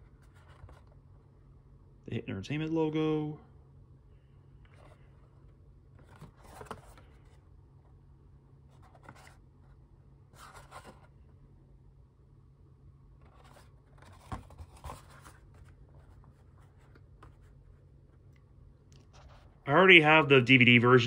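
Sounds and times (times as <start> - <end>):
steady low hum: 0.0 - 21.0
tape case rustling and scraping: 13.2 - 17.6.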